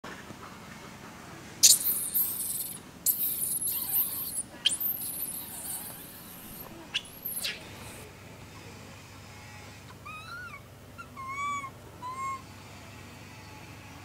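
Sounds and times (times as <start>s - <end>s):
infant monkey screaming: 1.6s - 8.0s, 10.0s - 12.5s.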